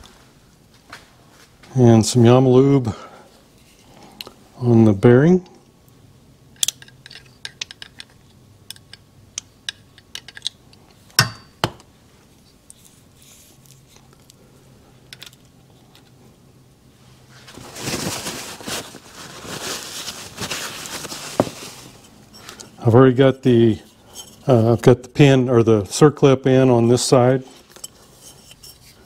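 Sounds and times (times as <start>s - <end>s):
rustling scraping of handling: 3.4s - 4.2s, 12.5s - 14.4s, 16.9s - 24.9s, 27.4s - 29.0s
small metal parts clicking: 6.6s - 11.0s.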